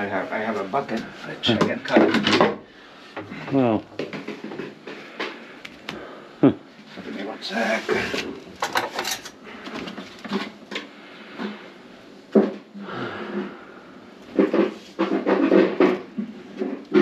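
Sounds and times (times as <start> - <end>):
household objects knocking and clattering: 1.4 - 5.5, 8.2 - 11.6, 14.3 - 17.0.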